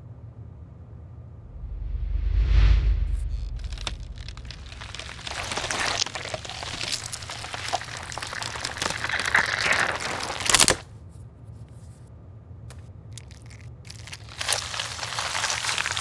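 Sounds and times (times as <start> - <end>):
fruit stem crunching: 3.5 - 10.9, 13.2 - 16.0
stem snapping: 3.6 - 10.8, 13.2 - 16.0.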